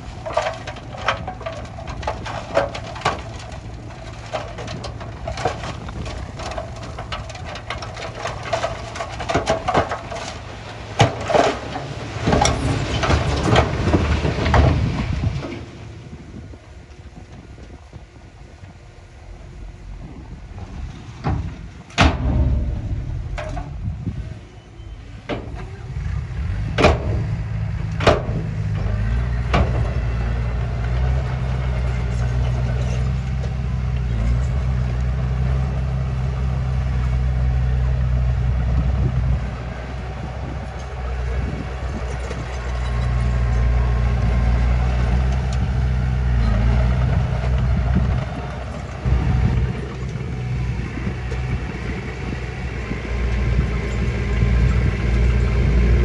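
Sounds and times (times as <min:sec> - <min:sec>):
diesel engines running: 0:00.0 - 0:56.0
sharp knocks: 0:21.2 - 0:24.1.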